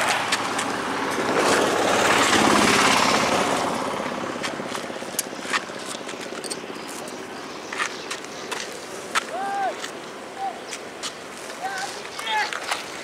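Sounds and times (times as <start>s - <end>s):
vehicle engine passing: 0.0s - 7.4s.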